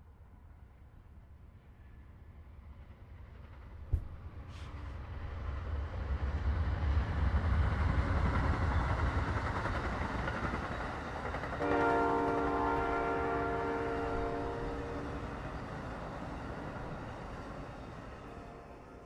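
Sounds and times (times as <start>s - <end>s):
train rumbling past: 0.6s - 19.0s
train horn chord: 11.6s - 15.4s, 18.3s - 19.0s.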